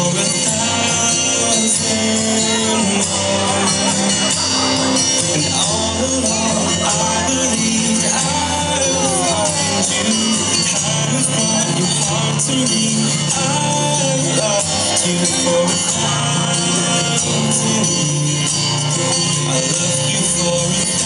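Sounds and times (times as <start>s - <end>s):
person singing: 0.0s - 21.0s.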